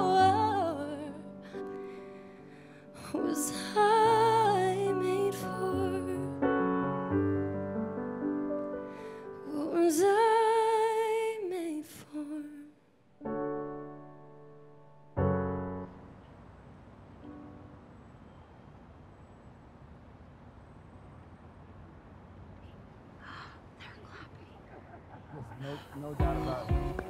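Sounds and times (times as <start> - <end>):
woman singing ballad: 0.0 - 1.7, 3.0 - 6.4, 9.4 - 12.7
piano chords: 0.0 - 11.6, 12.8 - 19.6, 25.7 - 27.0.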